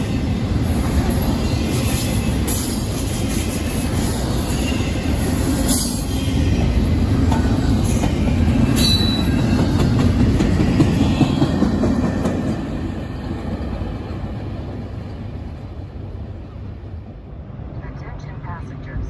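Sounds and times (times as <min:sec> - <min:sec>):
train wheels rumbling on rails: 0:00.0 - 0:17.4
high squeal: 0:08.8 - 0:09.5.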